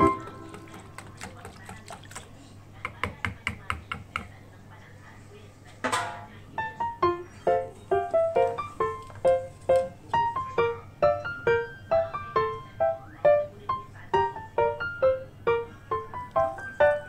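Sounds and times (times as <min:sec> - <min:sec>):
keyboard melody: 0:00.0 - 0:01.0, 0:06.5 - 0:17.0.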